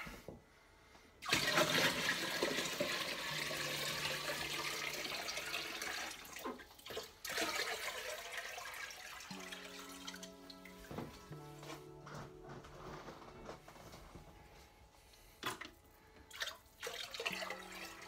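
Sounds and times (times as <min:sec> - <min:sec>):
water pouring and splashing: 0:01.2 - 0:11.8, 0:15.4 - 0:18.0.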